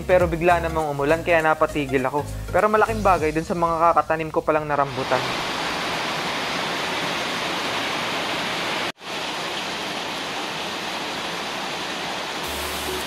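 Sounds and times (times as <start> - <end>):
rain falling: 4.8 - 13.0.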